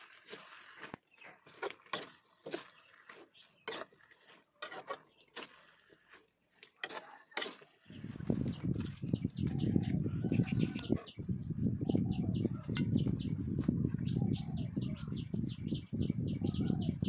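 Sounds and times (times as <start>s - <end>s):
metal spatula scraping a wok: 1.9s - 5.8s.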